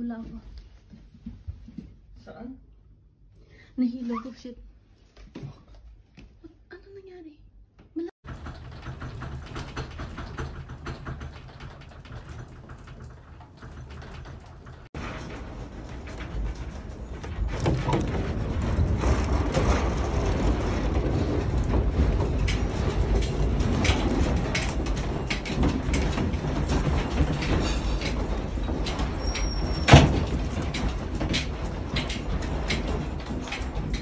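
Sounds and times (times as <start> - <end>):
house rattling and rumbling: 7.8 - 34.0.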